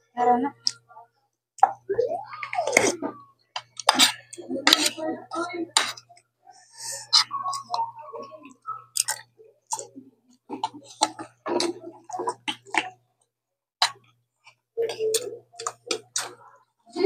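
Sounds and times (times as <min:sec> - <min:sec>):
eating sounds: 0:01.6 - 0:05.0, 0:05.7 - 0:13.0, 0:13.8 - 0:17.0.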